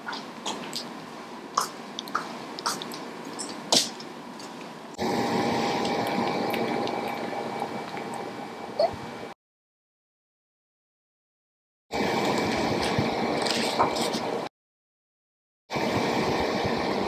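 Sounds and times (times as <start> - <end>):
steady hum with tones: 0.0 - 9.4, 11.9 - 14.5, 15.7 - 17.0.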